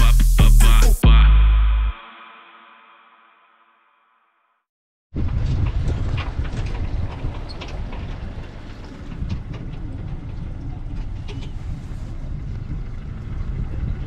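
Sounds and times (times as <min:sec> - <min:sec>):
knocks and rattles: 0:05.2 - 0:11.8
vehicle rumbling in motion: 0:05.2 - 0:14.0.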